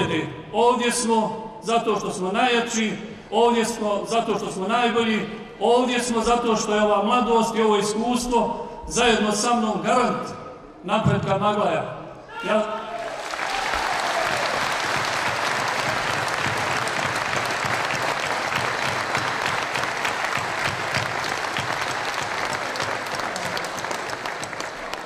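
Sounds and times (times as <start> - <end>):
audience applauding: 13.0 - 25.0.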